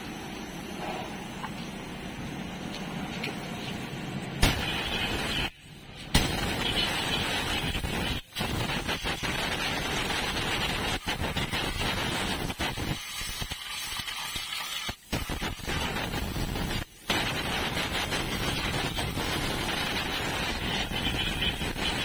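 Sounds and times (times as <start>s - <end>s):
compressed air blow gun hissing: 4.4s - 22.0s.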